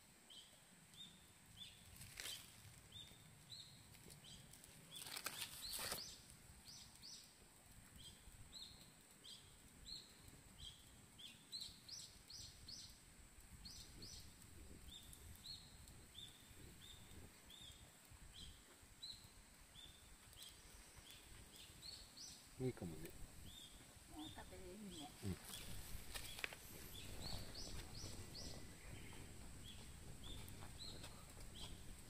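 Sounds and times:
small bird chirping: 0:00.3 - 0:13.0, 0:13.6 - 0:32.0.

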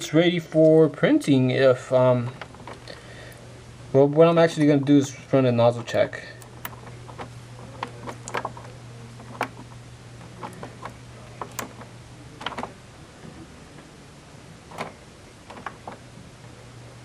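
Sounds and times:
steady low hum: 0:00.0 - 0:17.0
plastic printer buttons clicking: 0:05.8 - 0:12.8, 0:14.7 - 0:16.0.

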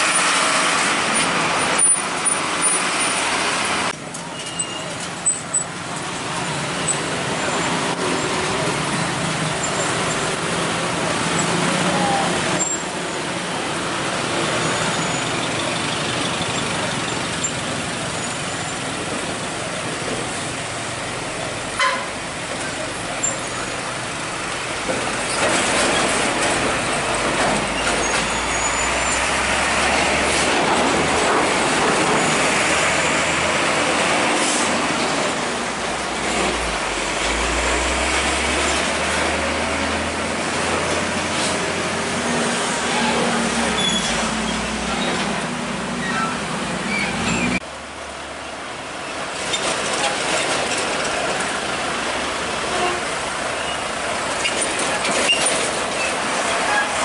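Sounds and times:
motorcycle engines: 0:00.0 - 0:57.0
truck engines passing: 0:00.0 - 0:57.0.

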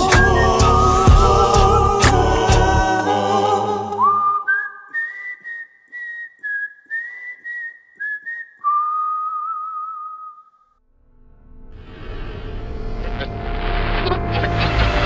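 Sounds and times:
person whistling a tune: 0:00.0 - 0:02.1, 0:04.0 - 0:10.7.

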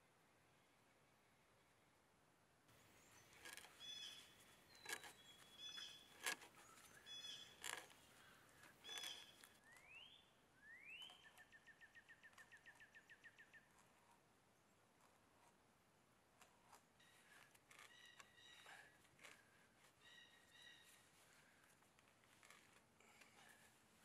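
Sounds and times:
blue jay calling: 0:02.8 - 0:13.7, 0:17.0 - 0:18.9, 0:19.9 - 0:21.1
bird whistles and trill: 0:08.8 - 0:13.4.

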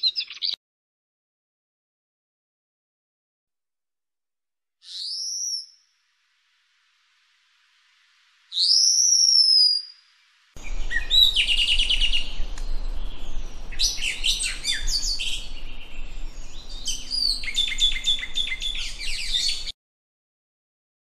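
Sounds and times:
thrush singing high chirps: 0:04.8 - 0:06.0, 0:08.4 - 0:19.7.

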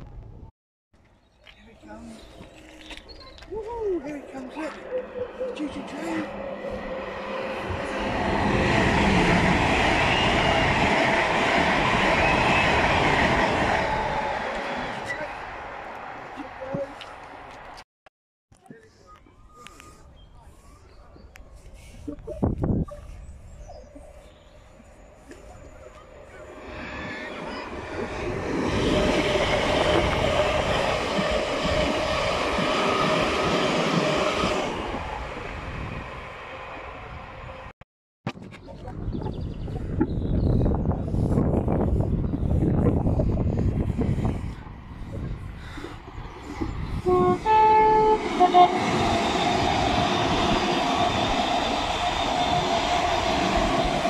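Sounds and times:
train passing at speed: 0:03.5 - 0:17.8, 0:24.6 - 0:37.7, 0:41.3 - 0:54.0.

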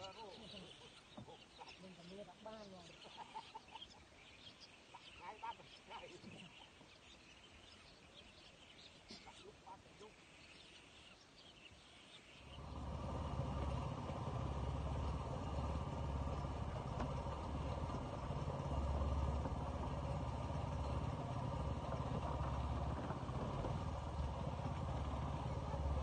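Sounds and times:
small engine running: 0:12.4 - 0:26.0.

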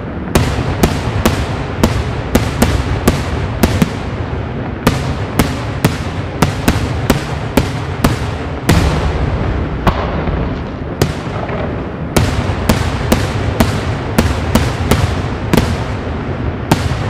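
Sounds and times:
firework bangs: 0:00.0 - 0:17.0
low rumble: 0:00.0 - 0:17.0.

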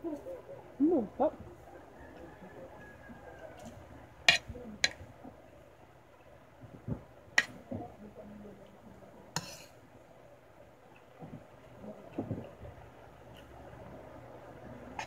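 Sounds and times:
spoon scraping a plate: 0:09.4 - 0:09.7.

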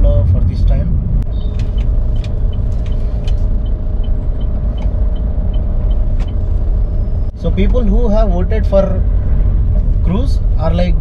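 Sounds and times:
car engine and road rumble: 0:00.0 - 0:11.0
light regular ticking: 0:01.2 - 0:06.8.

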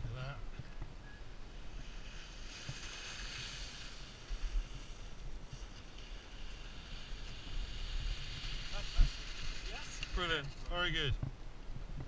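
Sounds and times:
wind rumbling on microphone: 0:00.0 - 0:12.0
skis scraping over snow: 0:01.5 - 0:11.2.

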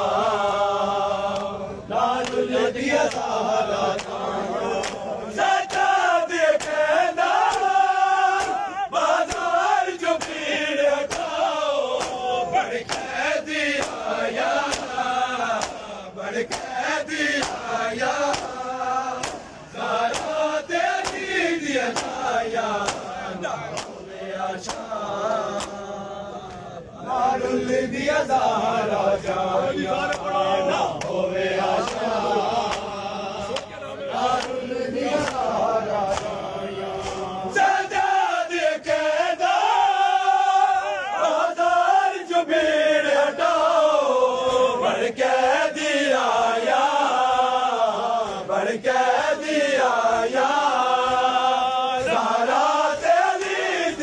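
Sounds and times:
men chanting together: 0:00.0 - 0:54.0
hands slapping chests: 0:02.2 - 0:04.2, 0:04.8 - 0:14.0, 0:14.6 - 0:16.8, 0:17.4 - 0:26.7, 0:31.0 - 0:37.4.

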